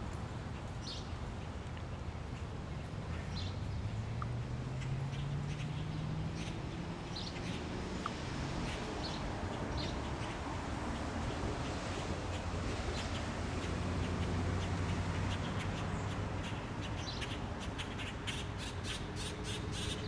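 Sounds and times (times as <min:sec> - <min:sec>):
small birds chirping: 0:00.5 - 0:20.0
engine drone rising in pitch: 0:03.4 - 0:11.7.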